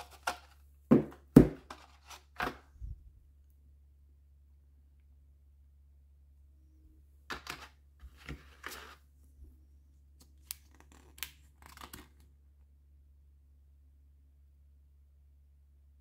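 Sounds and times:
paper rustling and crinkling: 1.6 - 2.6, 7.3 - 9.2, 10.2 - 12.3.

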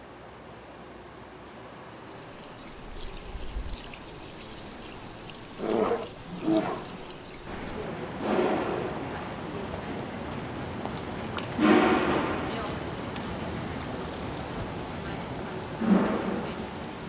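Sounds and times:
fountain water splashing into basin: 2.1 - 7.9.

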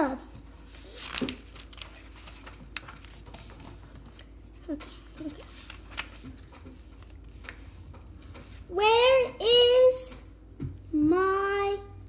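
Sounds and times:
book pages rustling: 0.3 - 8.8
fingers tapping paper: 0.9 - 8.6.

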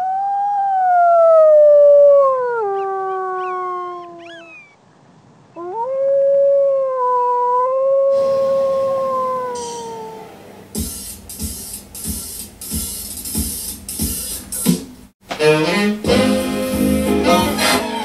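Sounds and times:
coyote howling: 0.0 - 4.8, 5.6 - 10.5
coyote yips: 2.6 - 4.8.

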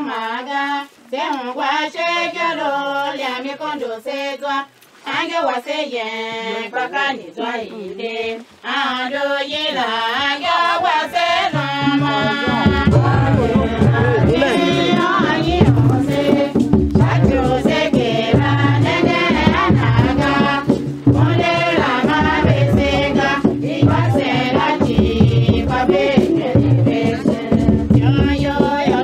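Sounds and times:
lower voices singing: 0.0 - 29.0
person singing slowly: 6.0 - 16.4.

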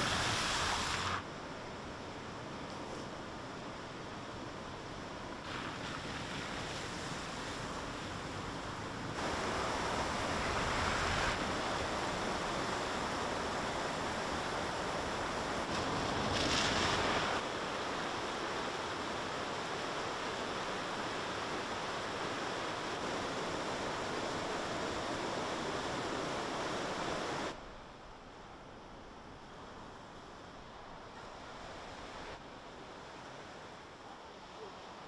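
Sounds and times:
rushing floodwater: 3.2 - 27.6.

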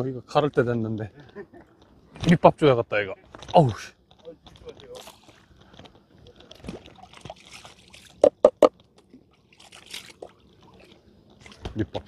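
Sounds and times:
water splashing and trickling: 3.5 - 12.0
sharp knocks: 8.2 - 8.7.

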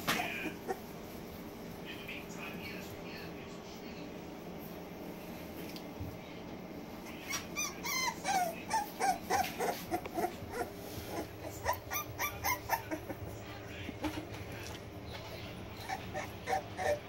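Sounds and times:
puppies whimpering: 7.1 - 13.6, 15.2 - 17.0.

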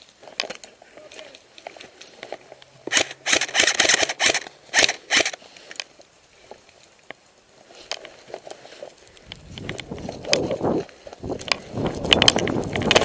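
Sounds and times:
airsoft guns firing bursts: 2.9 - 5.4.

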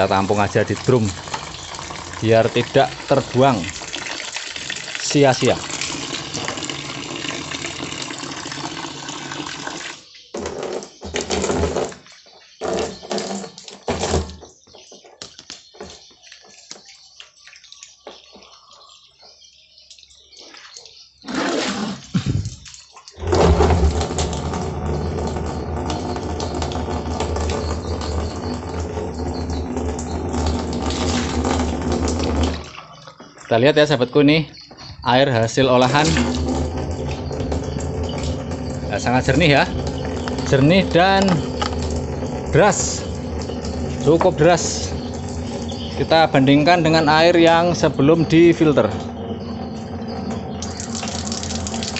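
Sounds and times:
water gushing from valve: 0.0 - 10.1, 21.3 - 33.6, 35.4 - 51.9
uneven bursts of noise: 23.2 - 32.7.

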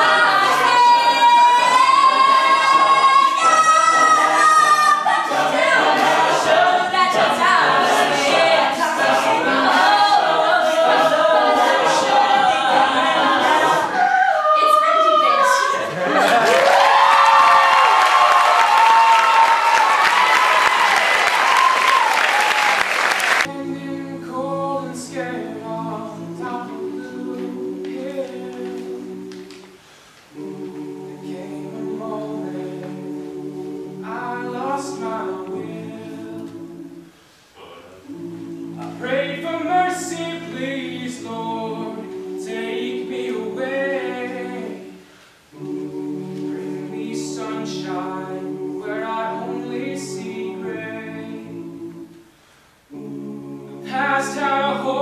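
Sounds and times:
a cappella group singing harmony: 0.0 - 55.0.

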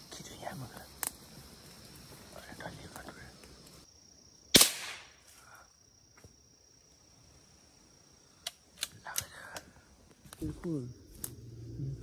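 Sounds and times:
rifle shot with echo: 4.5 - 5.2.

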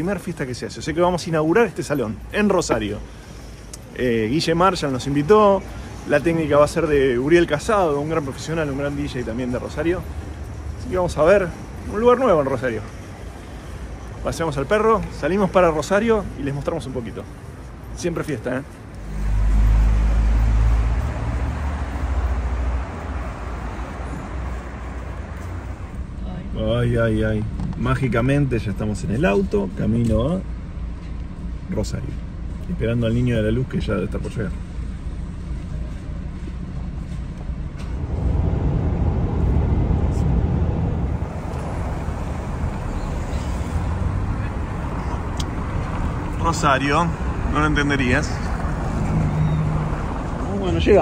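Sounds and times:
low traffic rumble: 0.0 - 51.0
passing cars hissing: 37.6 - 50.5.

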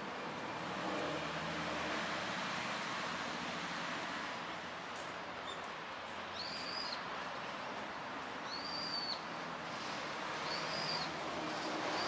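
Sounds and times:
bird whistling call: 6.4 - 7.0, 8.5 - 9.2, 10.4 - 11.1.

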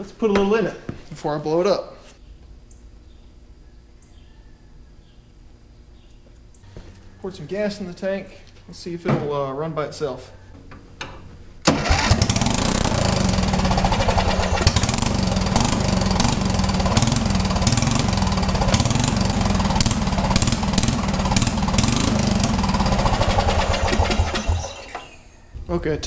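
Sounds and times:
riding mower engine running: 11.6 - 25.2.

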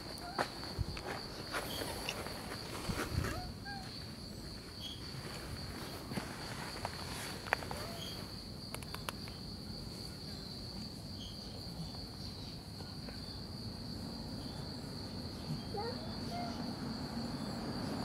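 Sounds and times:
crickets trilling: 0.0 - 18.0
faint clicks: 8.7 - 9.4.

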